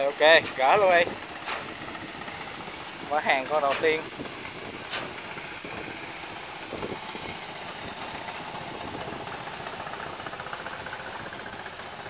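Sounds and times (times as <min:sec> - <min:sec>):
engine running: 0:00.0 - 0:12.0.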